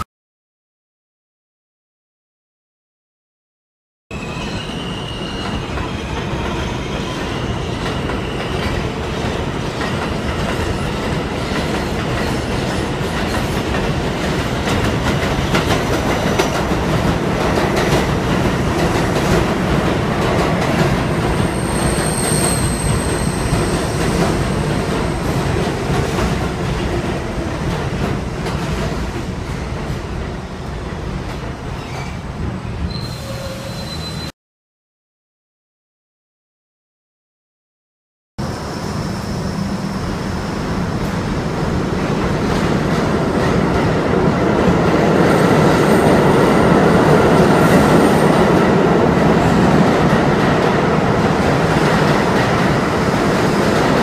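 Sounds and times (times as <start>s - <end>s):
high wheel squeal: 4.1s - 8.7s, 21.3s - 25.2s, 32.9s - 34.3s
subway train rumbling: 4.1s - 34.3s, 38.4s - 54.0s.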